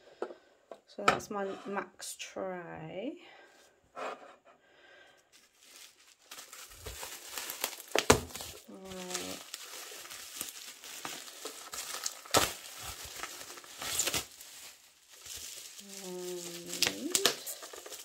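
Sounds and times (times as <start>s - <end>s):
bubble wrap crinkling: 5.3s - 18.0s.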